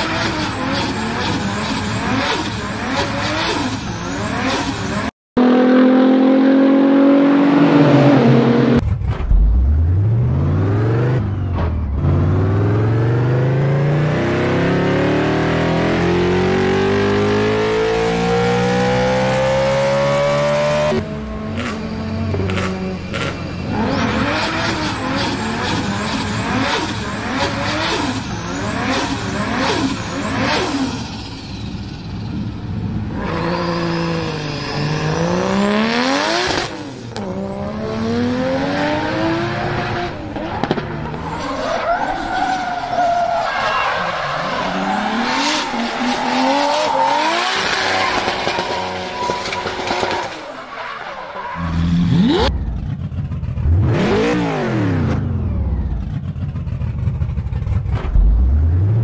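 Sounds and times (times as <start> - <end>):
race car engine noise: 0.0 - 59.0
engine accelerating rising pitch: 5.4 - 25.8, 44.0 - 49.0.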